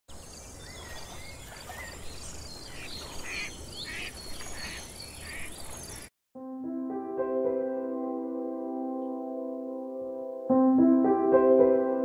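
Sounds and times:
birds chirping and calling: 0.1 - 6.1.

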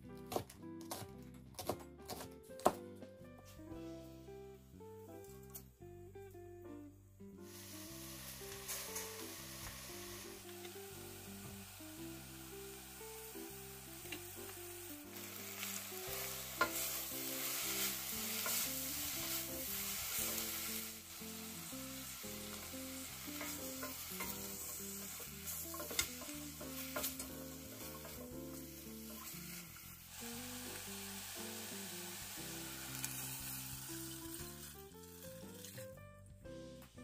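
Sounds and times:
food sizzling in a pot: 7.4 - 36.0.

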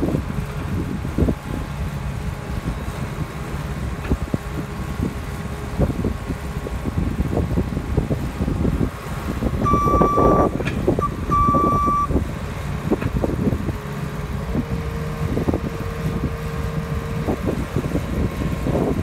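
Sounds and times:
loader diesel engine under load: 0.0 - 19.0
reversing alarm beeps: 9.6 - 12.1.

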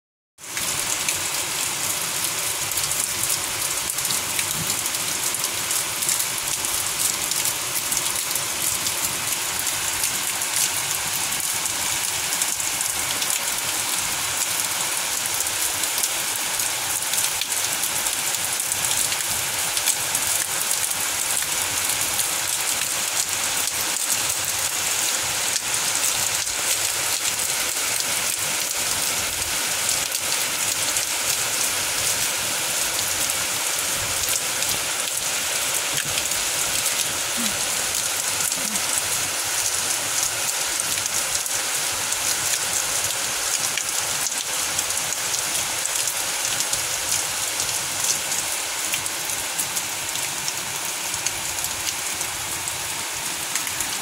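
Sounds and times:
raindrops pattering: 0.4 - 52.8
heavy rain falling: 0.4 - 54.0.

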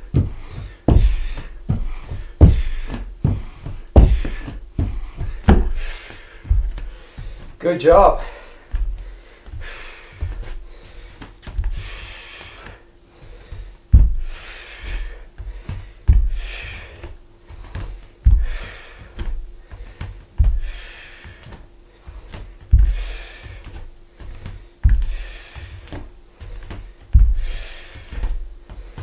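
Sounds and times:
bare feet thumping on wooden floor: 0.0 - 29.0
man breathing hard: 0.0 - 29.0.

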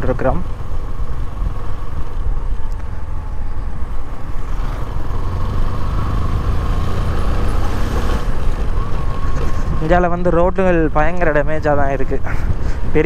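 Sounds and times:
motorcycle engine rumble: 0.0 - 13.0.

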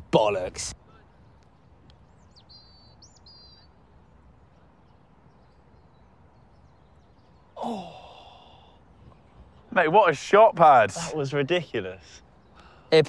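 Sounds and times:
faint outdoor ambience: 0.0 - 13.0
small bird chirping and trilling: 2.0 - 3.8.

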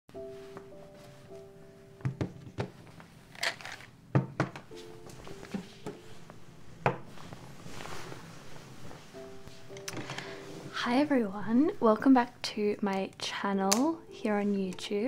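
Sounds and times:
soft melodic background music: 0.1 - 15.0
objects knocking on wooden desk: 2.0 - 2.8, 4.1 - 4.7, 6.8 - 7.1
hand sliding objects: 4.8 - 10.8.

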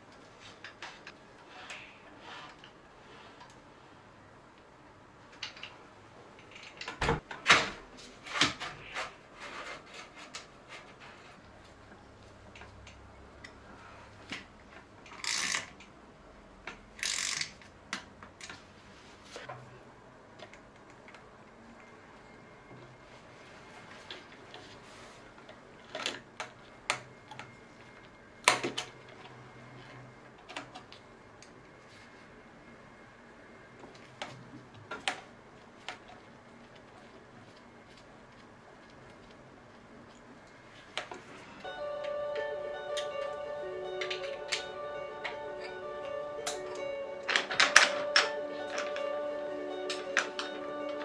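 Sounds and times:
small parts clicking and tapping: 14.3 - 16.0, 16.6 - 18.6, 49.9 - 51.0.

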